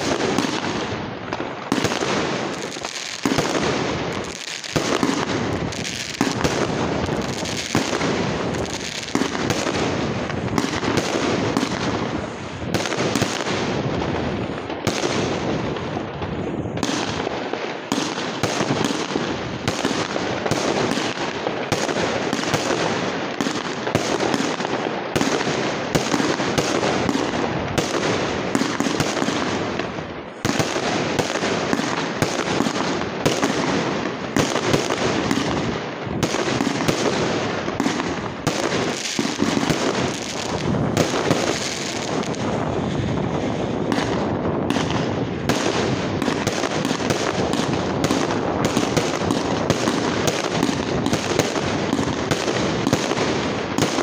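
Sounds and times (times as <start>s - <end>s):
firework shells bursting: 25.4s - 43.0s.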